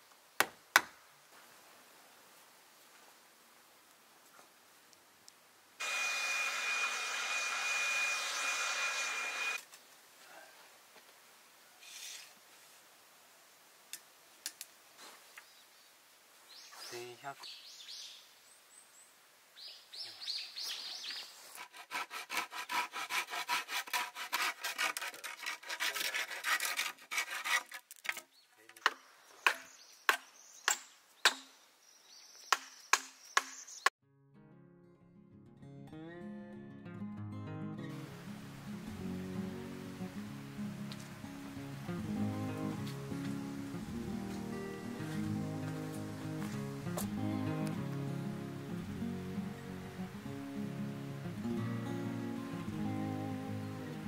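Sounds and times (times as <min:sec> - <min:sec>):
cordless blower running: 0:05.8 - 0:09.6
hand saw cutting bamboo: 0:21.4 - 0:28.2.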